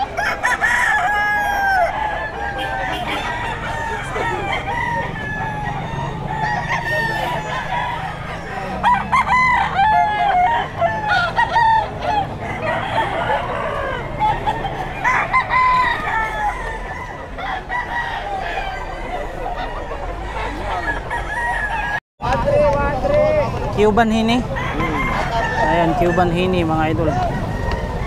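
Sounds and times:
chickens clucking: 0.0s - 28.0s
roosters crowing: 0.0s - 28.0s.

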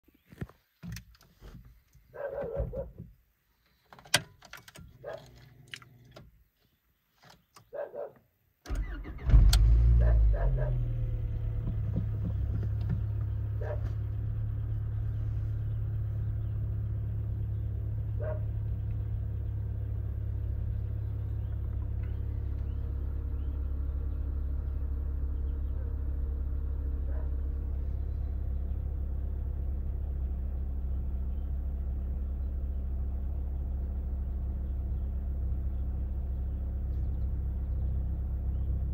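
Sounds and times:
car engine idling: 8.7s - 38.9s.

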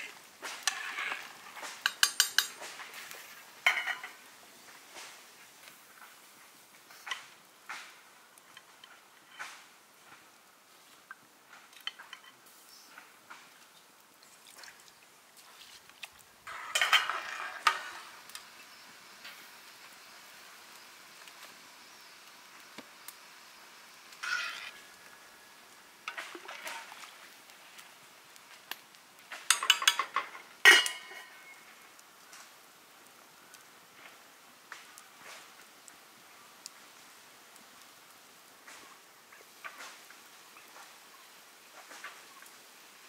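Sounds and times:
metal cookware clattering: 0.6s - 2.6s, 3.6s - 4.2s, 16.5s - 18.2s, 29.4s - 31.5s.

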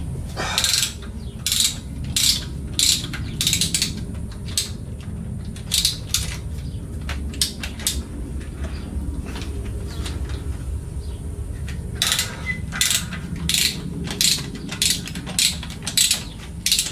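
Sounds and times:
ratchet wrench clicking: 0.5s - 6.4s, 12.0s - 16.9s.

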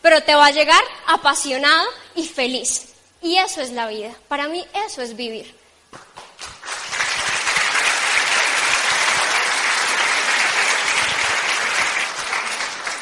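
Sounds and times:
audience applauding: 6.0s - 13.0s.

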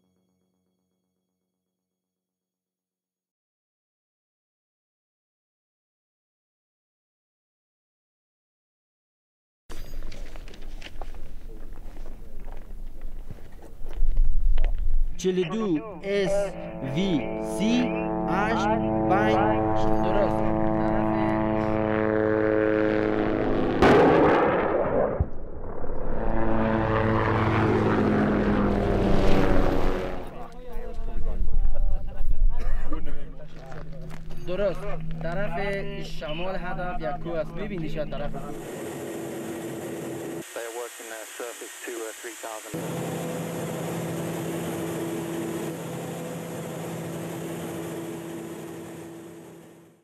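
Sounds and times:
helicopter engine and rotor drone: 15.2s - 23.8s, 26.2s - 31.0s, 33.0s - 50.0s
loud rushing blast: 21.4s - 30.4s.

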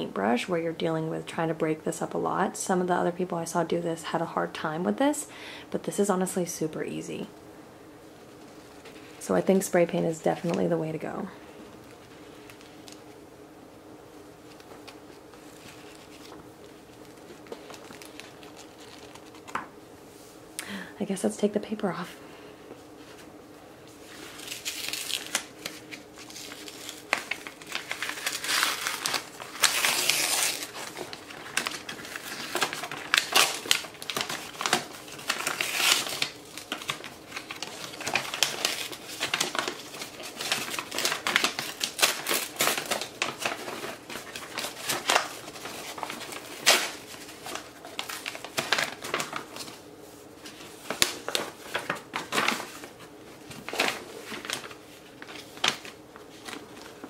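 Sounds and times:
paper and tape crinkling: 8.4s - 13.1s, 14.4s - 19.7s, 23.9s - 57.0s
sharp paper crackles: 14.4s - 19.7s, 24.1s - 57.0s.

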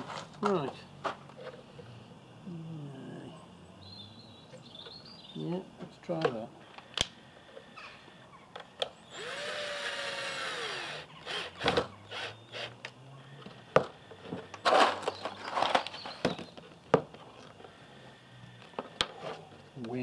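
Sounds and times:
cordless drill boring into wood: 9.1s - 12.8s.

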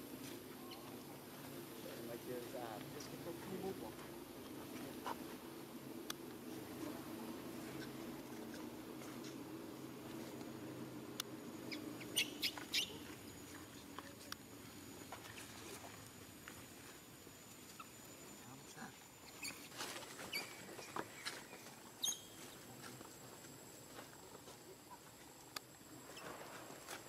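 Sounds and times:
monkey squeaking and chirping: 11.7s - 13.0s, 19.2s - 20.7s, 22.0s - 22.4s.

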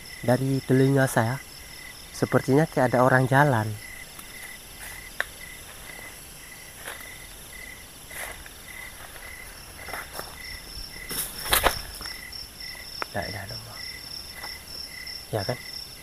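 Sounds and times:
constant high insect buzz: 0.0s - 16.0s
crickets chirping: 0.0s - 16.0s
higher insect chirp: 0.0s - 16.0s
rustles and knocks on tarp: 11.0s - 12.2s.

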